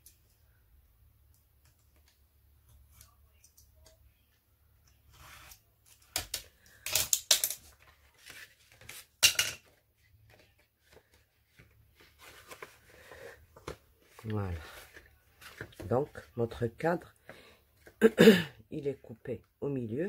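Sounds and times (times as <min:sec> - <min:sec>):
card stock being handled: 0:09.7 - 0:16.3.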